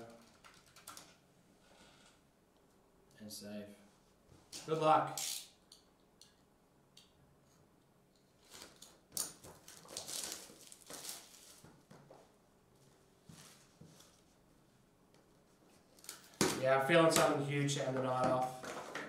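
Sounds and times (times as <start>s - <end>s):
plastic shrink wrap crinkling and tearing: 8.4s - 11.7s.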